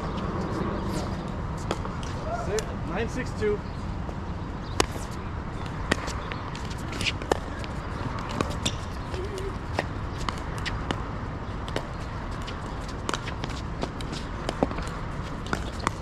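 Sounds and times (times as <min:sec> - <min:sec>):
ball bouncing on court: 0:04.8 - 0:16.0.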